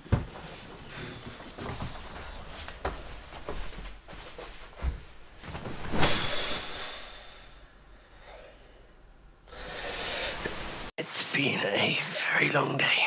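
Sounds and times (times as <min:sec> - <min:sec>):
person flopping onto bed: 0:00.1 - 0:06.7
tired breath out: 0:09.5 - 0:10.6.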